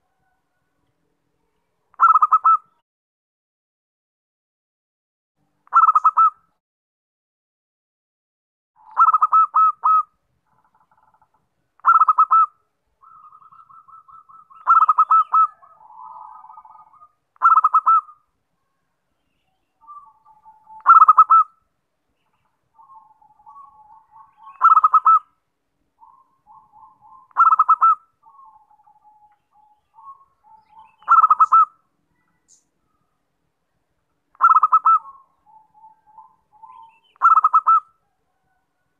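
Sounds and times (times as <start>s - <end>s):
dove cooing: 2.0s - 2.7s, 5.7s - 6.3s, 8.8s - 10.1s, 11.8s - 18.2s, 19.8s - 21.5s, 22.8s - 25.3s, 26.0s - 32.3s, 34.4s - 38.9s.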